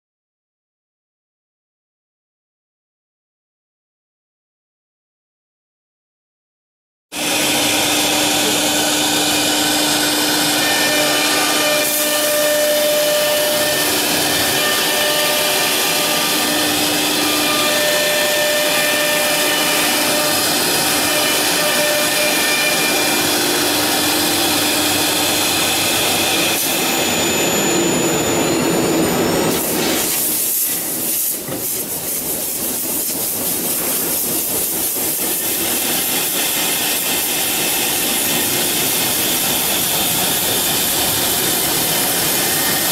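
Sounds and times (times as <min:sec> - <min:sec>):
wood router spindle whine: 0:07.2 - 0:30.2, 0:35.2 - 0:42.9
router cutting into wood: 0:07.2 - 0:31.6, 0:34.2 - 0:42.9.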